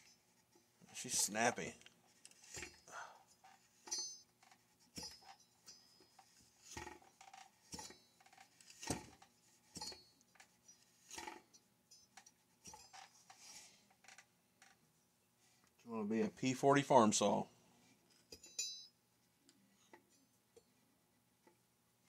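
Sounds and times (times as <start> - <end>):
metal parts clinking: 3.4 - 10.0.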